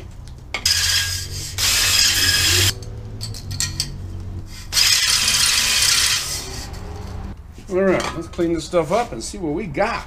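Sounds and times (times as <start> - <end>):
cordless drill spinning: 0.7 - 2.7, 4.6 - 6.7.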